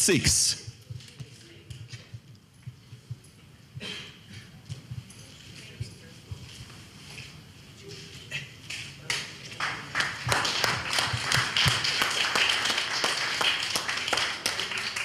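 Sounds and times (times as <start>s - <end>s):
crowd clapping: 9.1s - 15.0s.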